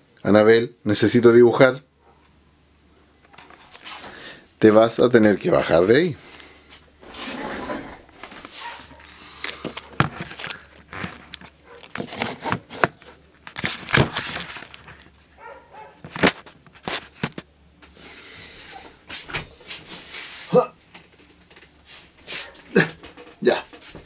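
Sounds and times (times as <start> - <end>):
paper crinkling: 8.3 - 17.4
handling knocks and clicks: 23.0 - 24.0.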